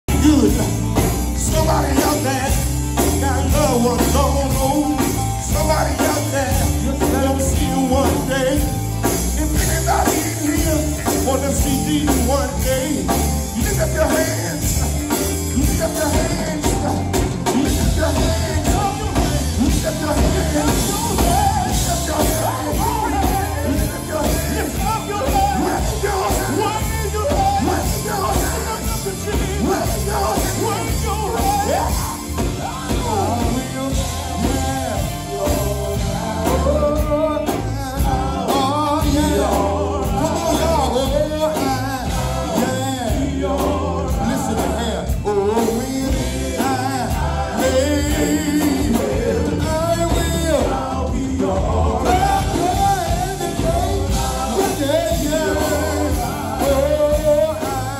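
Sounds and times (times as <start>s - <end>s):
electric bass and band: 0.0s - 57.9s
male vocal group singing gospel: 0.0s - 57.9s.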